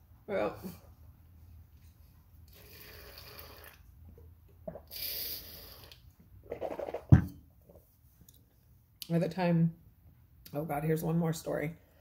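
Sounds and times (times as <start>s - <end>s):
sipping and swallowing: 4.6s - 6.1s
bottle knocking on hard surface: 7.0s - 7.4s.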